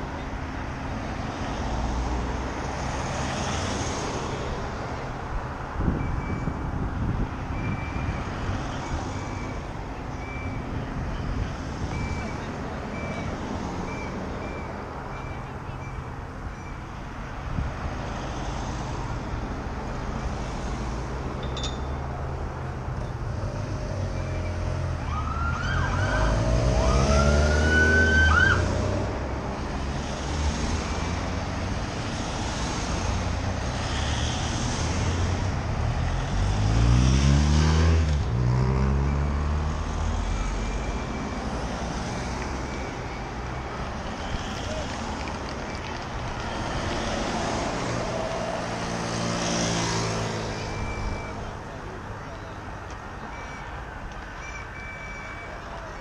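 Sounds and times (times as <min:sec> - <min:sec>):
motor vehicles passing: 0:00.0 - 0:56.0
siren rising wail: 0:25.0 - 0:28.9.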